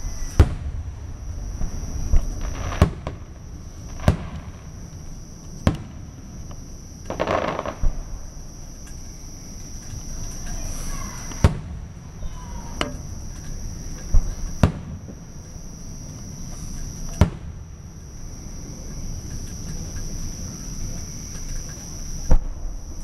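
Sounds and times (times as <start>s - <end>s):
high-pitched insect trill: 0.0s - 23.0s
firework shells bursting: 0.3s - 23.0s.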